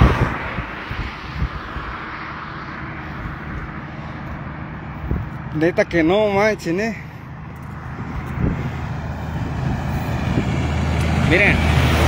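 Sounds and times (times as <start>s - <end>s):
vehicle passing: 0.0s - 12.0s
traffic rushing hiss: 6.4s - 12.0s.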